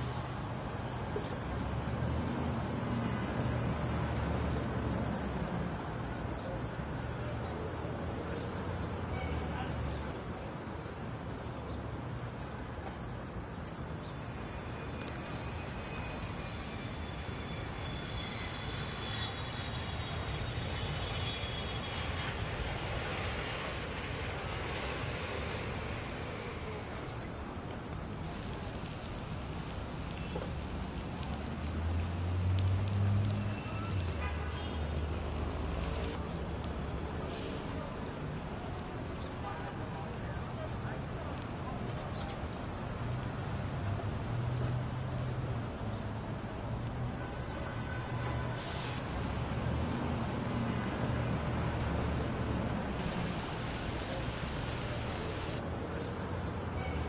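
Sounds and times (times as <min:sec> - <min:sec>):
steady rain on wet street: 0:00.0 - 0:10.2, 0:18.4 - 0:55.6
hum of vehicles: 0:00.0 - 0:57.0
car passing on wet road: 0:23.2 - 0:55.6.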